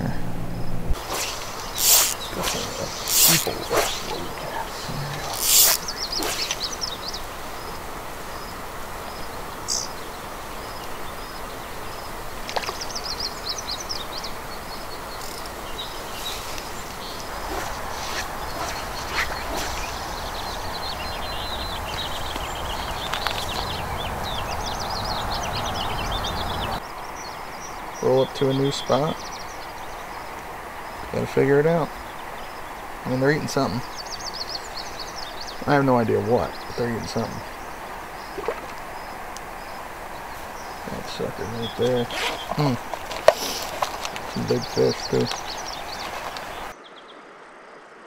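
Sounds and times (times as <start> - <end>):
small birds chirping: 0.0 - 47.8
steady outdoor hiss: 0.0 - 48.0
faint clicks: 21.9 - 23.7.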